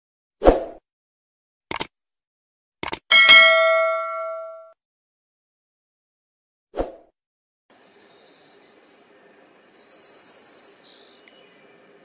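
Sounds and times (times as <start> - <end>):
sharp click: 1.7 - 1.9, 2.8 - 3.0
faint outdoor background: 7.7 - 12.0
warbler singing buzzy trill: 7.7 - 12.0.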